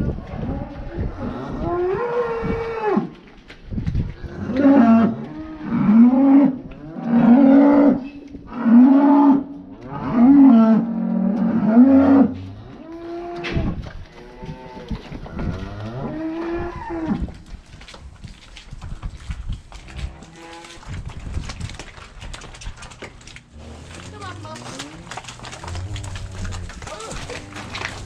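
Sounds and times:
cattle mooing: 23.5 - 28.0.

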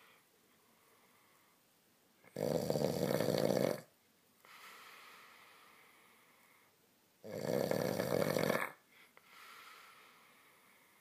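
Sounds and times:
soft breathing: 0.0 - 1.8, 4.4 - 6.9, 8.8 - 11.0
man snoring: 2.3 - 3.9, 7.2 - 8.8.

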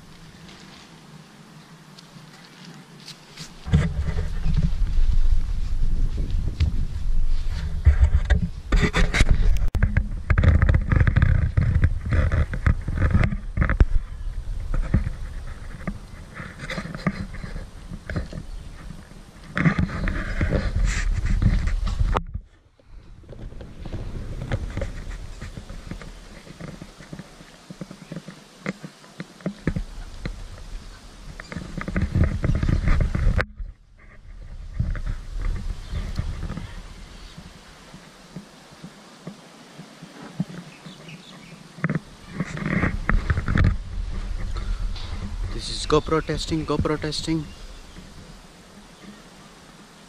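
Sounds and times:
scraping against camera: 2.4 - 38.0, 40.2 - 49.2
low rumble: 3.7 - 10.9, 20.2 - 26.9
camera handling knocks and scrapes: 7.8 - 14.0.

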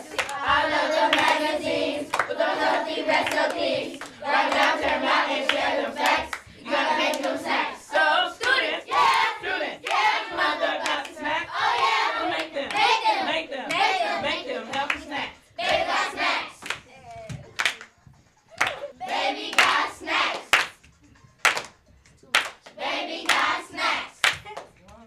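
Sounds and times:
children rapping in unison: 0.0 - 17.6, 18.7 - 20.8, 22.2 - 24.5
hand clapping: 0.1 - 0.5, 1.1 - 1.5, 2.1 - 2.4, 16.6 - 18.0, 18.6 - 18.9, 19.5 - 23.5, 24.2 - 25.0.

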